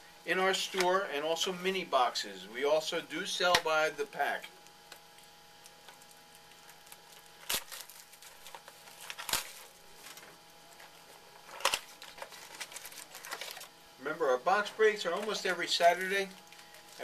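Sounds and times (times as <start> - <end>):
packaging tearing and crinkling: 5.1 - 13.7.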